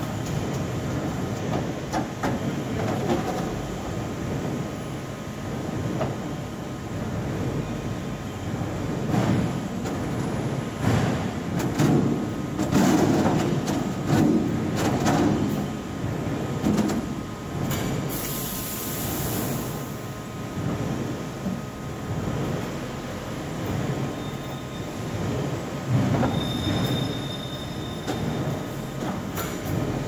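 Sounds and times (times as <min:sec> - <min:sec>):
steady mechanical rumble: 0:00.0 - 0:26.8
high hiss: 0:18.1 - 0:19.9.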